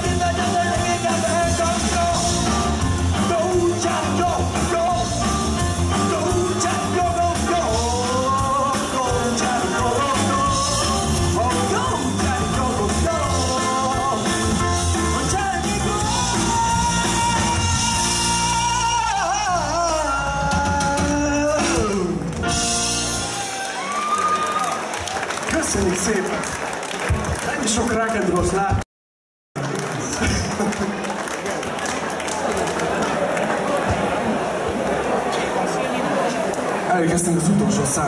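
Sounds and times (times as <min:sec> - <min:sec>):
person singing: 0:00.0 - 0:22.6
live rock band playing: 0:00.0 - 0:23.9.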